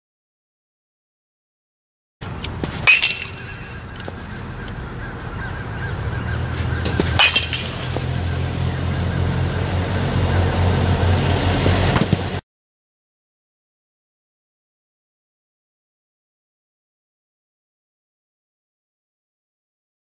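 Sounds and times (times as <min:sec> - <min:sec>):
bat hitting baseball: 0:02.2 - 0:05.7, 0:06.4 - 0:08.8.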